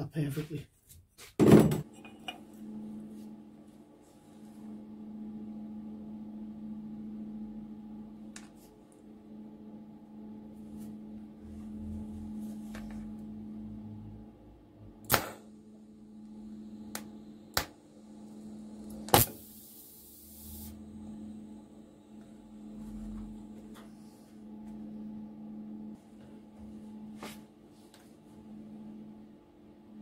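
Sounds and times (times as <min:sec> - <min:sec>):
low hum: 0:02.0 - 0:27.2
welding arc hissing: 0:19.1 - 0:20.8.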